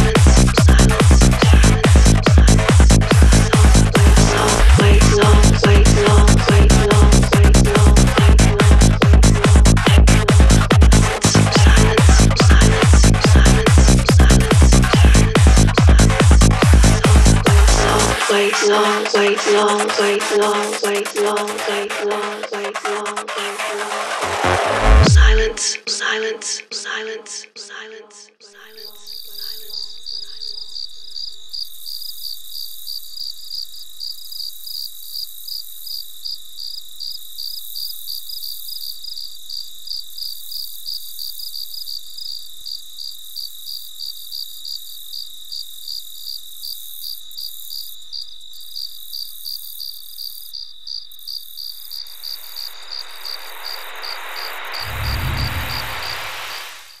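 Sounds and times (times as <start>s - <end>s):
crickets chirping: 28.5s - 57.0s
steady high trill: 52.5s - 57.0s
rising whoosh into low boom: 52.8s - 57.0s.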